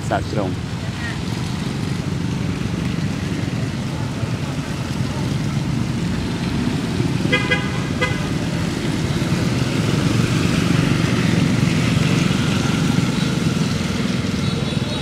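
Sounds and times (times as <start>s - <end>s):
vehicle engine rumble: 0.0s - 15.0s
car horn toots: 7.3s - 8.3s.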